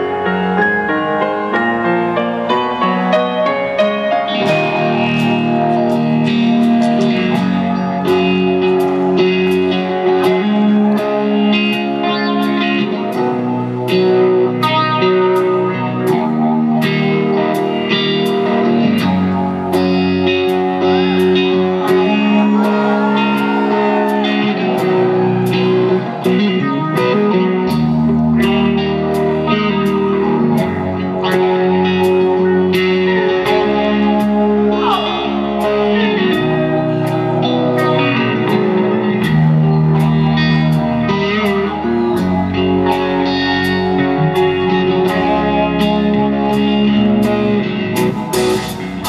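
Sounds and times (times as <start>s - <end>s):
electric guitar chords: 0.0s - 49.0s.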